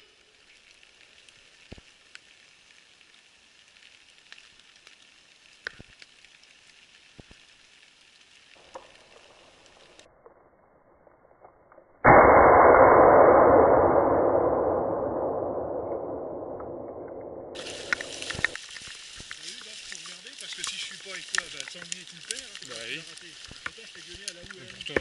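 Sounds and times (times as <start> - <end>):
rain pattering on an umbrella: 0.0 - 10.1, 17.6 - 25.0
rifle shot echoing: 12.1 - 18.6.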